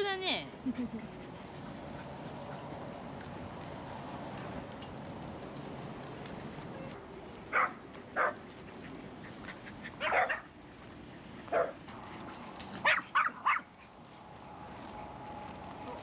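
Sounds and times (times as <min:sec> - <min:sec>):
dog barking: 0:07.5 - 0:08.4, 0:10.0 - 0:10.4, 0:11.5 - 0:11.8, 0:12.8 - 0:13.6.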